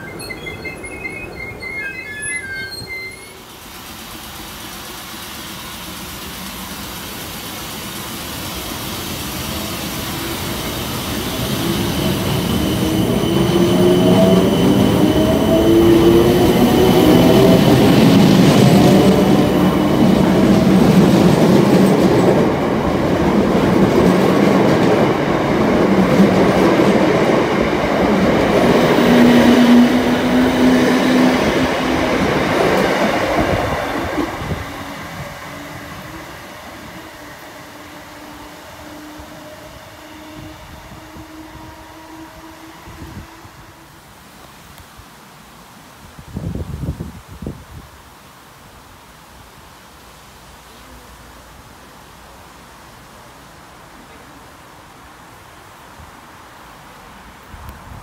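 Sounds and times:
electric train motors whining: 0.0 - 21.2
wheels rumbling on rail: 0.0 - 44.3.

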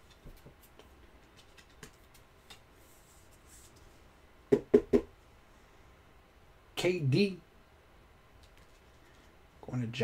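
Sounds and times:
trading cards being handled: 0.0 - 3.8, 8.4 - 9.4.

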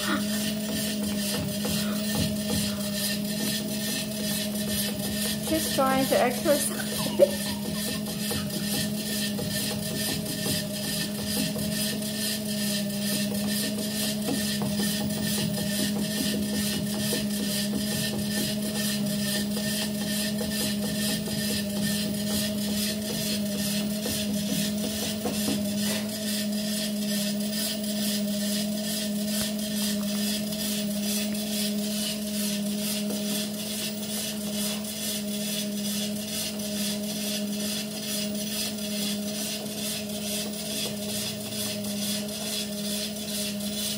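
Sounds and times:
treadmill belt ticking: 0.0 - 43.9
treadmill motor hum: 0.0 - 43.9.

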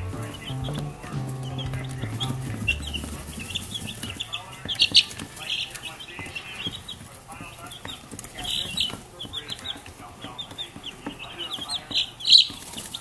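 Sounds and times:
background music: 0.0 - 4.2
chicks peeping: 0.0 - 13.0.

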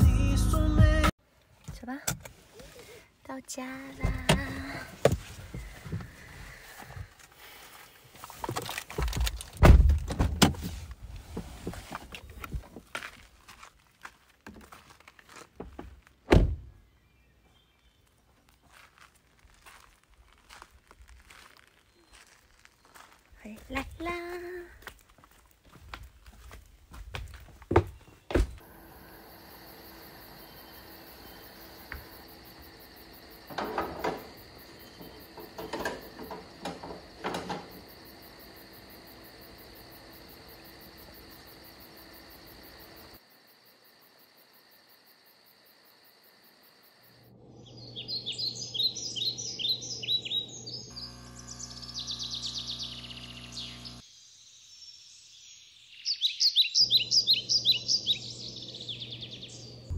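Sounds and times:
birds chirping in trills: 27.9 - 40.7, 47.4 - 59.9.

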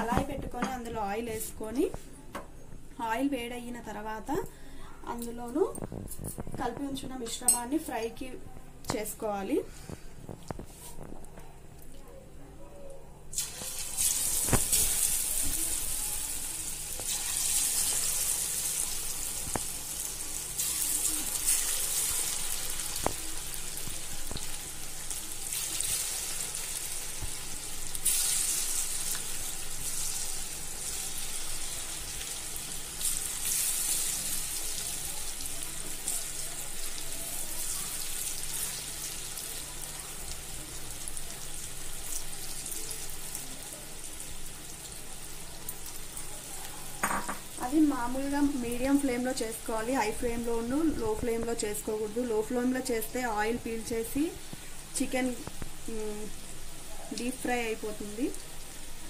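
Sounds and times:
chicken deep-frying in oil: 13.3 - 59.0.

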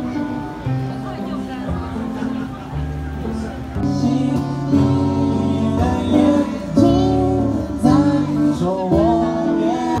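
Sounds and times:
backing music: 0.0 - 10.0
boy singing into microphone: 3.8 - 10.0.

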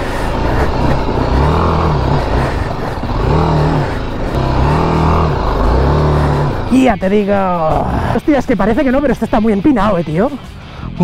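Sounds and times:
motorcycle engine revving: 0.0 - 9.0.

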